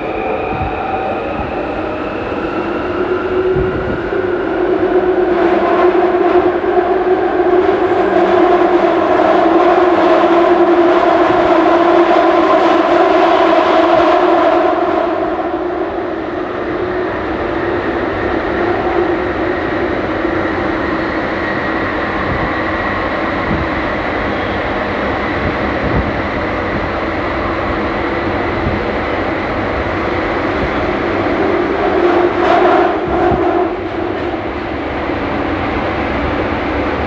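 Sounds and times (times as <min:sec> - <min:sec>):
train rumble with motor whine: 0:00.0 - 0:37.0.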